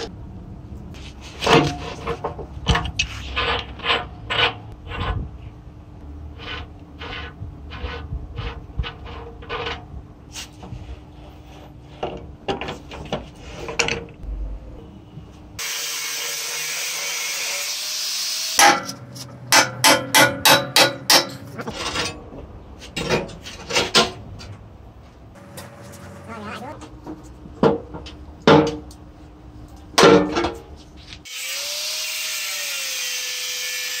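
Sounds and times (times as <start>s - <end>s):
scraping rust on steel tank: 1.1s - 5.5s, 6.3s - 14.2s.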